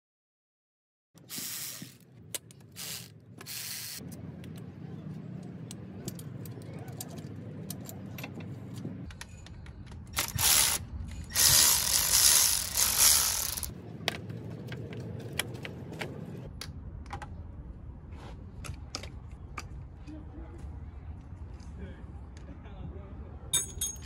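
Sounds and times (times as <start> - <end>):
electric ratchet running: 1.2 - 2.0, 2.8 - 4.0, 10.2 - 13.7
tools clinking against metal: 5.7 - 10.4, 23.5 - 24.0.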